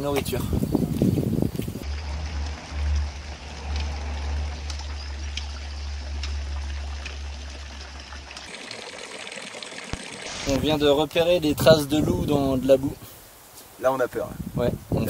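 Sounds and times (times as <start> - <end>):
low rumble: 1.3 - 8.5
fountain water splashing: 1.8 - 11.6.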